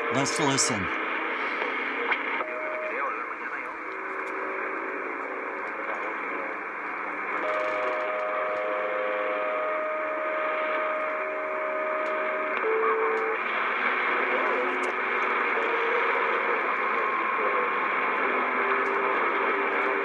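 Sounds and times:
radio static hiss: 0.0s - 1.0s, 2.5s - 6.6s.

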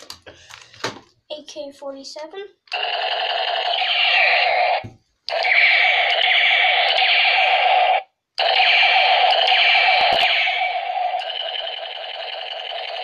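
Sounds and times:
toy gun electronic sound effect: 2.7s - 13.0s.

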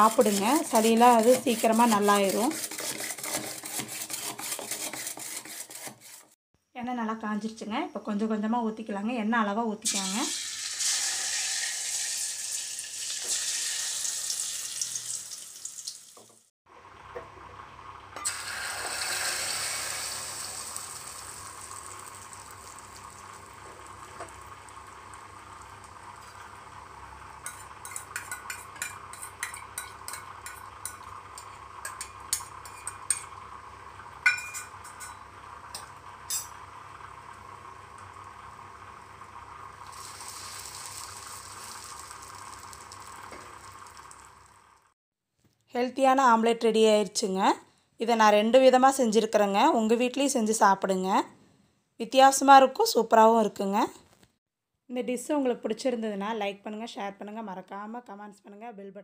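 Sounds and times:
batter sizzling in hot oil: 9.9s - 45.0s.

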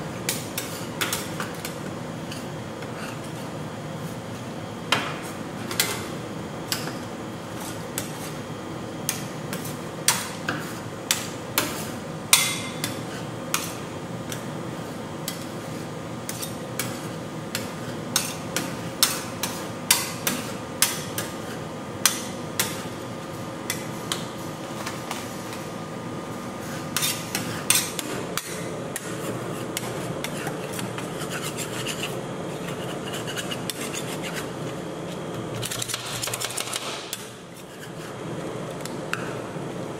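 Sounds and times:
steady hum: 0.0s - 39.9s.

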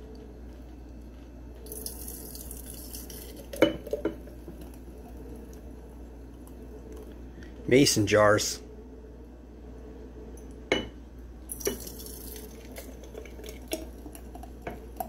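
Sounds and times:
thick smoothie pouring into jar: 1.6s - 4.0s, 11.5s - 15.0s
glass clinking on glass: 10.7s - 10.9s.

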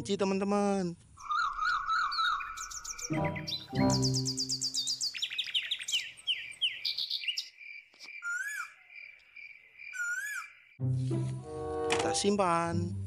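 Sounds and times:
birds chirping: 1.2s - 10.8s.

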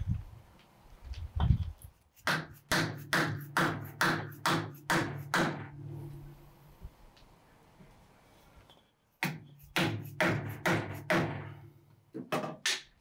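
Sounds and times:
hammer striking wooden block: 2.2s - 5.8s, 9.2s - 11.6s.

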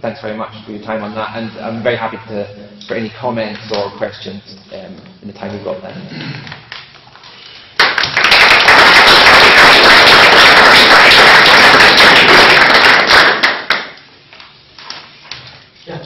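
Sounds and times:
audience applauding: 7.8s - 14.0s.

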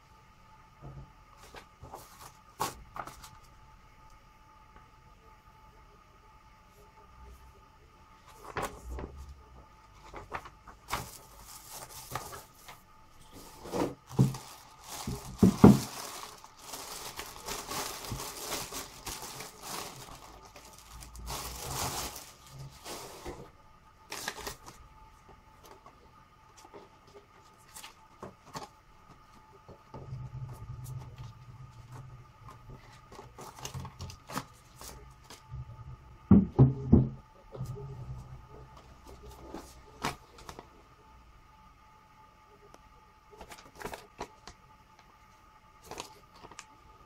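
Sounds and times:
plastic wrapping crinkling: 10.0s - 23.5s, 24.1s - 24.8s, 32.7s - 35.5s, 43.4s - 44.6s, 45.8s - 46.7s.

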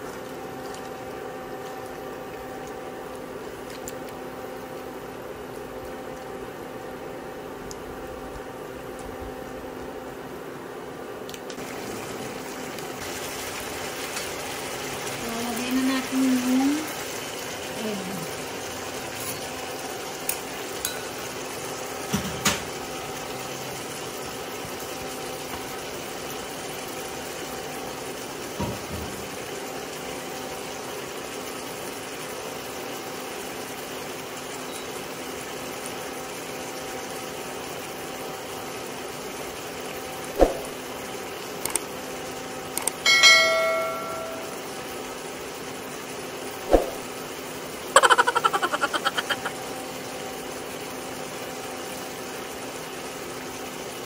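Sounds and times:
short ringing ding: 43.1s - 44.6s.

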